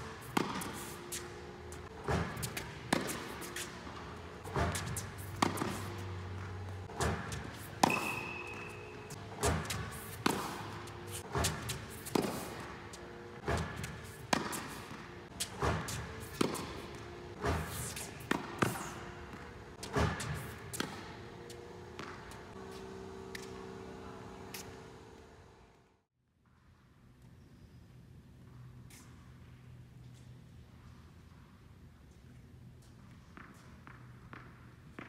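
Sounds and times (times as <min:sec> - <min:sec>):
racquet hitting tennis ball: 0:00.0 - 0:24.8.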